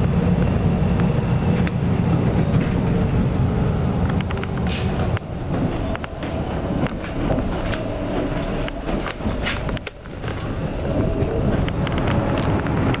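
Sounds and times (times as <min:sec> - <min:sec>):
train wheels rumbling on rails: 0:00.0 - 0:13.0
clicks and knocks from rail joints: 0:04.1 - 0:10.5.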